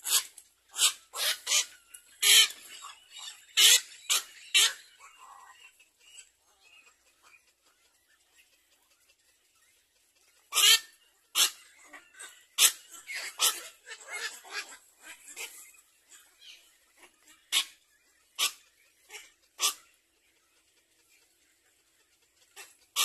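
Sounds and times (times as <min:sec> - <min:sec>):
harsh animal calls: 0:00.0 - 0:07.5, 0:10.4 - 0:20.8.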